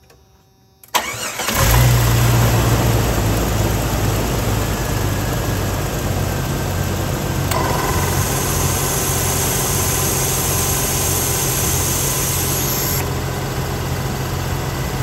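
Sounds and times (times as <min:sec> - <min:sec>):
car engine idling: 0:01.0 - 0:15.0
air compressor hissing: 0:07.6 - 0:13.1.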